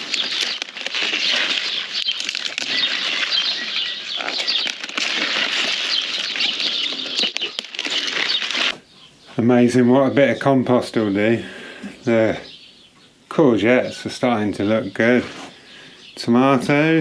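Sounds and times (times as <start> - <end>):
leaves rustling and snapping: 0.0 - 8.8.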